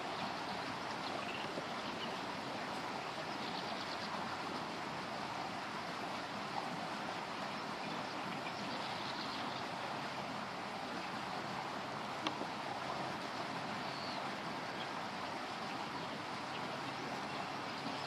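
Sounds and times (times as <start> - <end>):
river water rushing: 0.0 - 18.0.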